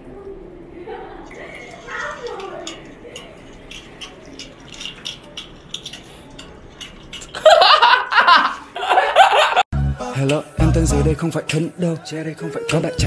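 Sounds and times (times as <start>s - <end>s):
high-pitched laughter: 7.4s - 9.6s.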